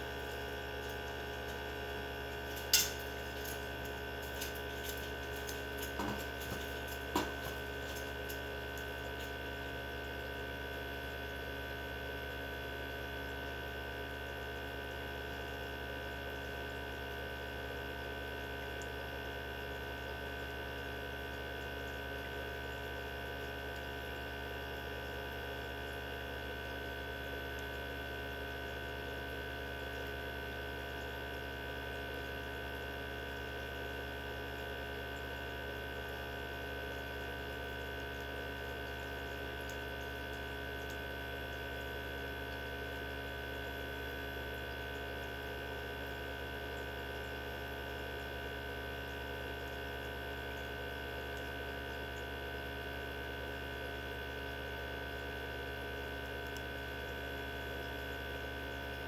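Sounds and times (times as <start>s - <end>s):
centrifuge motor whine: 0.0s - 10.6s.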